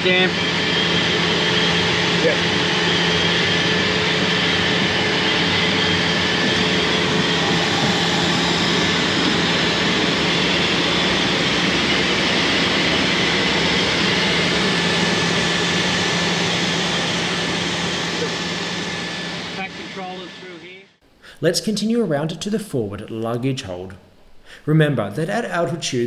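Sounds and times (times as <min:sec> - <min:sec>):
ventilation blower rushing: 0:00.0 - 0:20.8
low hum: 0:00.0 - 0:24.5.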